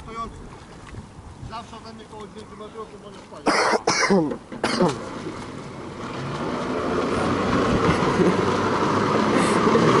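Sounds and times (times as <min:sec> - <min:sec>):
jet ski engine humming: 0:04.2 - 0:10.0.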